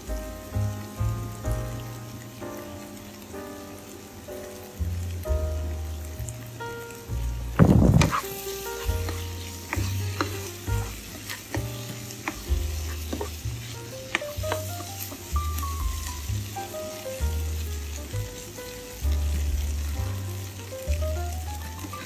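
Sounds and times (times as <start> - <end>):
background music: 0.0 - 22.0
food sizzling in a frying pan: 0.0 - 22.0
spatula scraping a pan: 7.6 - 16.3
spatula clicking on pan: 8.1 - 13.4.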